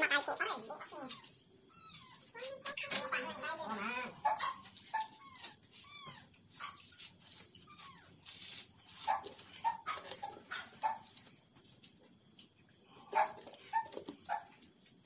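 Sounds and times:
dog yelping: 0.0s - 6.8s, 9.0s - 11.1s
dog whining: 0.5s - 6.3s.

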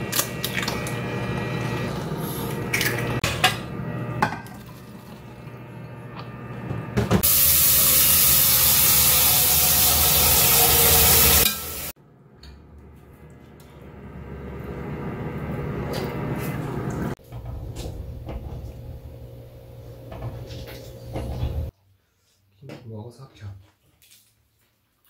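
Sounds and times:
vegetables sizzling in a pot: 7.2s - 12.0s.

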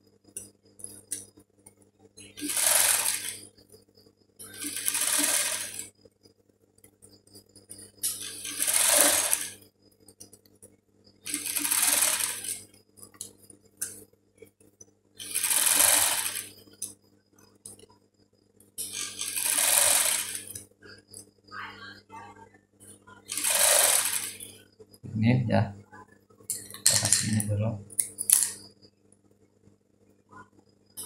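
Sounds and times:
sewing machine stitching: 2.2s - 3.4s, 4.4s - 5.9s, 8.0s - 9.6s, 11.2s - 12.8s, 15.2s - 16.6s, 18.8s - 20.6s, 23.2s - 24.6s
faint low hum: 24.5s - 31.0s.

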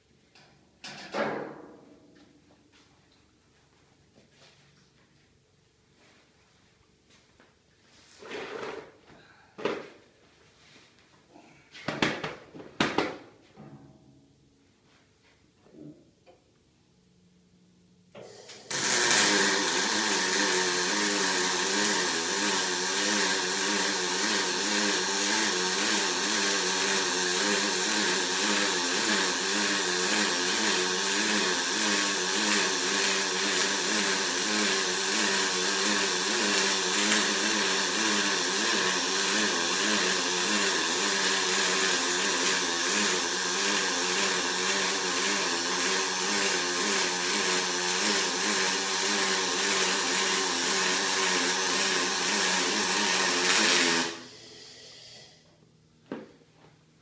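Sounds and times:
welding arc buzzing hiss: 18.1s - 55.6s.

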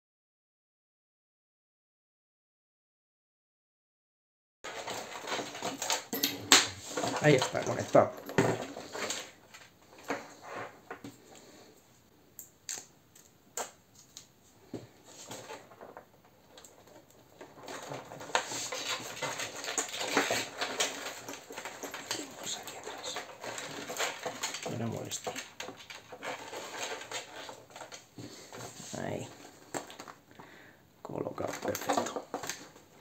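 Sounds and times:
rustling and tapping on plastic: 12.7s - 30.5s, 31.2s - 33.0s.

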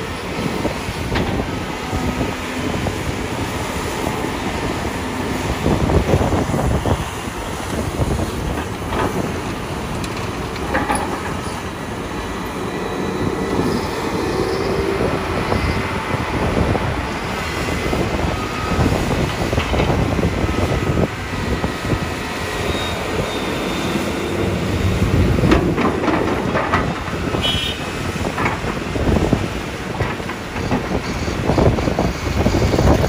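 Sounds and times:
excavator diesel engine rumble: 0.0s - 33.0s
metal clanks and knocks: 10.0s - 11.6s, 25.4s - 27.4s.

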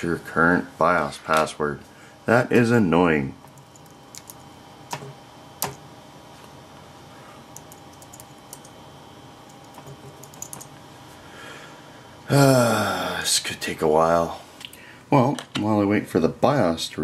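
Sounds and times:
faint steady hum: 0.0s - 17.0s
keyboard typing: 3.5s - 5.8s, 7.5s - 8.8s, 9.4s - 10.8s.

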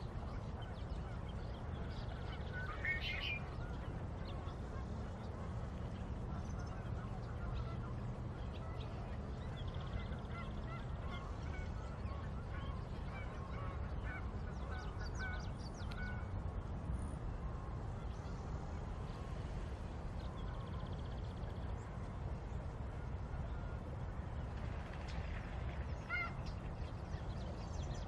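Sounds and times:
birds calling: 0.9s - 3.8s.

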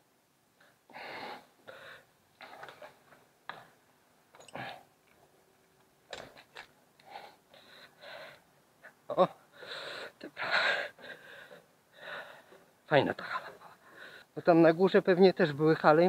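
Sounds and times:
puffs of breath: 0.9s - 2.1s, 9.5s - 12.7s, 13.7s - 14.4s.

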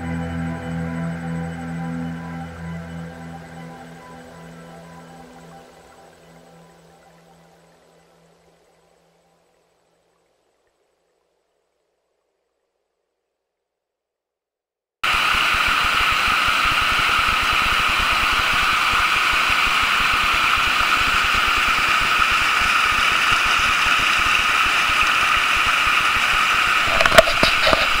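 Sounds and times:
river rushing over boulders: 15.0s - 28.0s.

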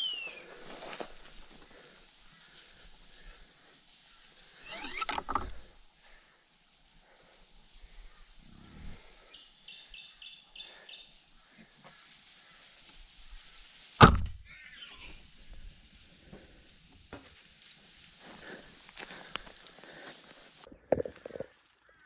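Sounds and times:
bowstring crack: 4.6s - 5.7s.

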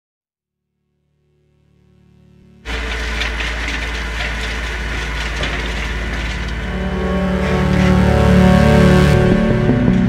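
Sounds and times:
wood chipper crunching wood: 2.6s - 10.0s
low engine hum: 2.7s - 10.0s.

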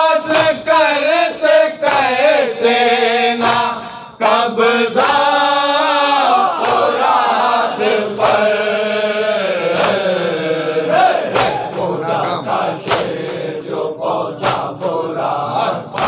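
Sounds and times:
men chanting into a microphone: 0.0s - 16.0s
hands slapping chests: 1.8s - 2.7s, 3.3s - 4.0s, 6.5s - 7.2s, 8.0s - 8.6s, 9.7s - 10.4s, 11.2s - 12.0s, 12.8s - 13.5s, 14.4s - 15.1s.

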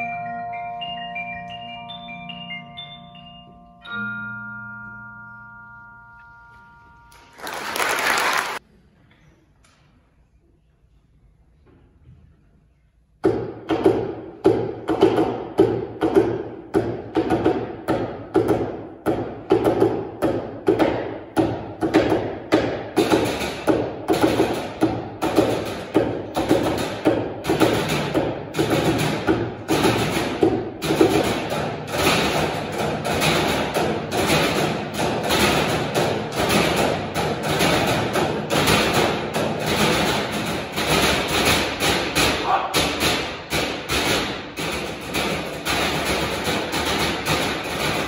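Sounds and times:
drumsticks striking metal trash cans: 13.2s - 48.0s.

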